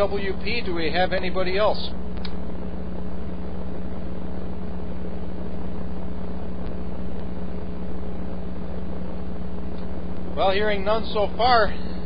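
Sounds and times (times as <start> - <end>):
low hum: 0.0 - 12.0
radio receiver hiss: 0.0 - 12.0.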